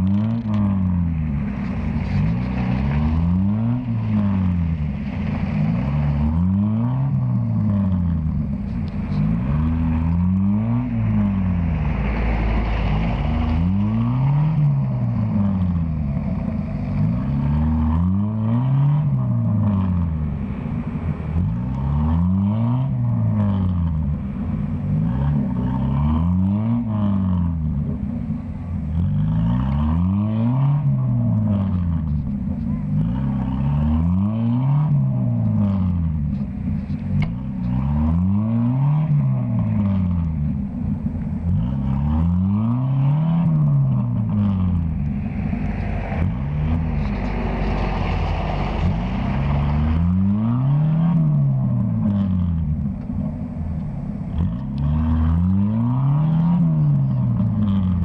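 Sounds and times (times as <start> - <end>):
off-road engine revving: 0.0 - 58.0.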